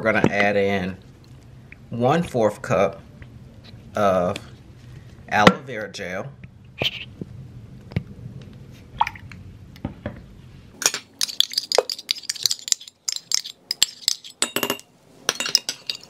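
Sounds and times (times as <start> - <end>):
metal and glass clinks: 10.8 - 16.0
metal spoon scraping gel: 11.1 - 14.4.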